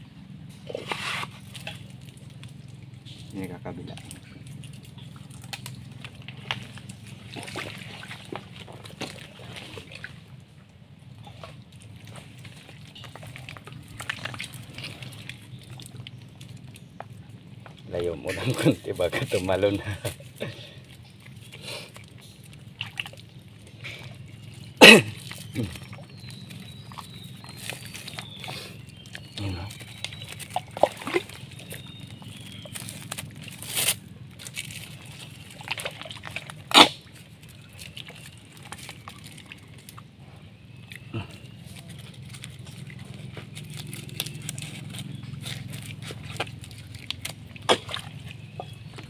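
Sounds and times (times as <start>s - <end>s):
steady low hum: 0.0s - 49.0s
clicks and crackles of wet mud: 0.4s - 49.0s
throat clearing: 19.9s - 20.8s, 24.8s - 25.8s
person coughing: 24.8s - 25.2s.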